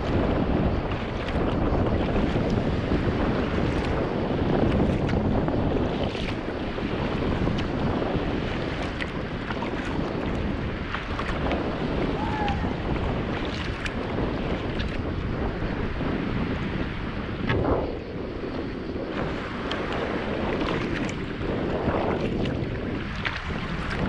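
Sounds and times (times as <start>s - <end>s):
water lapping and splashing: 0.0s - 24.0s
wind buffeting microphone: 0.0s - 24.0s
small splashes: 0.9s - 2.7s, 3.5s - 4.0s, 8.5s - 14.0s, 22.0s - 24.0s.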